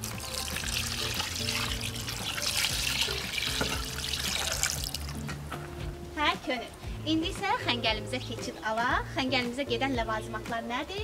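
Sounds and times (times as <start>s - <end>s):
water pouring into metal pot: 0.0s - 5.2s.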